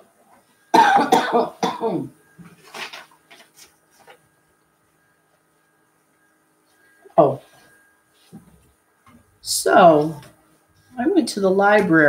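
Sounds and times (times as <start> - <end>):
woman coughing: 0.7 - 2.1
paper rustling: 2.4 - 4.4.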